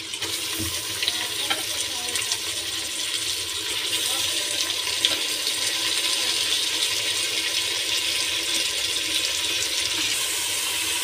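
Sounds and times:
meat sizzling in hot oil: 0:00.0 - 0:11.0.

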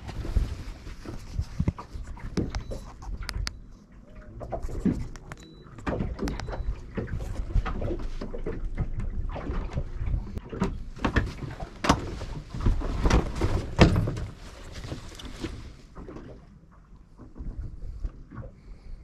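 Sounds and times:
steady low rumble: 0:00.0 - 0:16.0
knocks and clunks of handling: 0:04.5 - 0:16.2.

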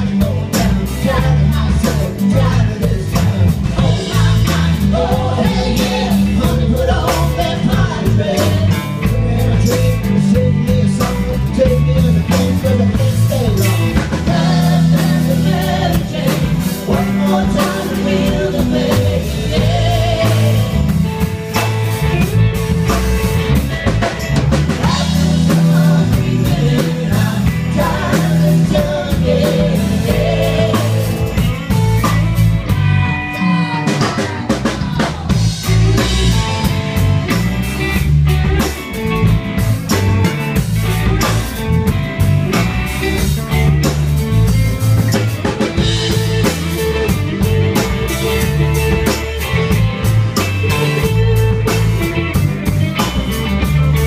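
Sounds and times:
drum kit: 0:00.0 - 0:54.0
electric bass guitar: 0:00.0 - 0:54.0
electric guitars: 0:00.0 - 0:54.0
woman singing: 0:00.5 - 0:13.6, 0:14.2 - 0:20.9, 0:24.8 - 0:31.5.

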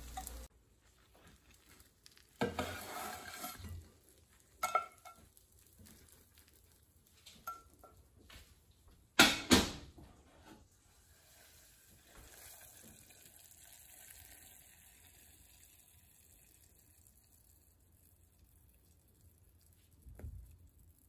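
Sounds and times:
spatula scraping a pan: 0:02.3 - 0:05.4.

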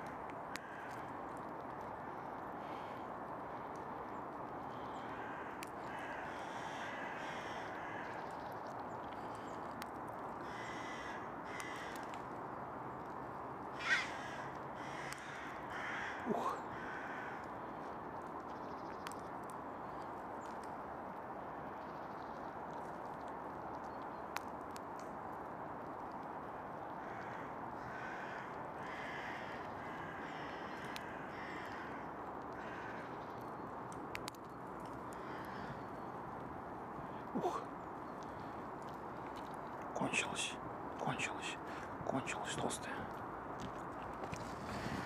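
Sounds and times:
crows cawing: 0:00.5 - 0:01.2, 0:04.7 - 0:08.4, 0:10.4 - 0:12.3, 0:13.7 - 0:17.8, 0:26.8 - 0:33.4, 0:34.9 - 0:36.1.

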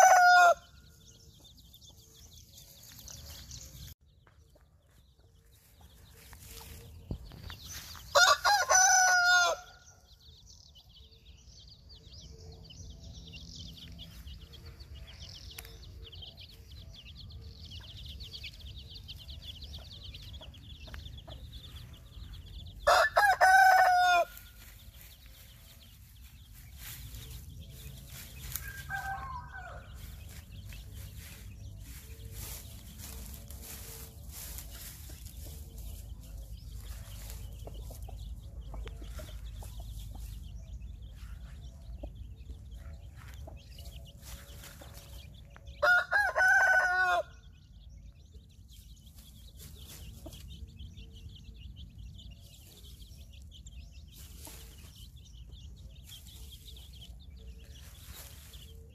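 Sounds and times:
rooster crowing: 0:00.0 - 0:00.7, 0:08.1 - 0:09.8, 0:22.8 - 0:24.4, 0:45.8 - 0:47.4.

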